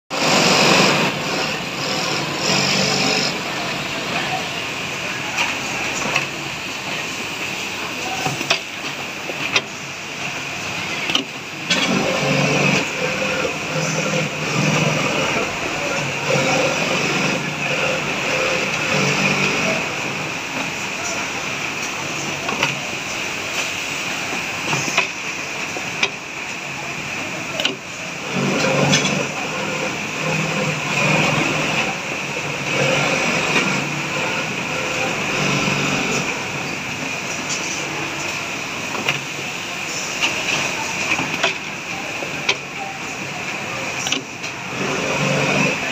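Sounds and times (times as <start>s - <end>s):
sewing machine humming: 0.1s - 6.5s, 10.0s - 23.4s, 24.1s - 45.9s
sewing machine motor bursts: 0.2s - 3.4s, 16.0s - 19.8s
people talking: 0.7s - 23.7s, 24.3s - 45.9s.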